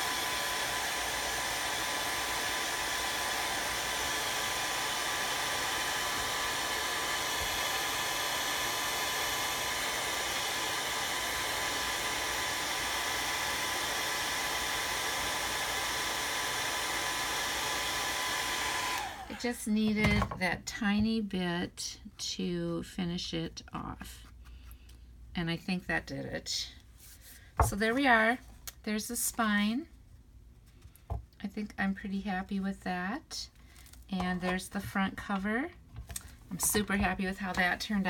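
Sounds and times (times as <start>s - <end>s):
hot-air dryer blowing: 0.0s - 20.4s, 36.1s - 38.0s.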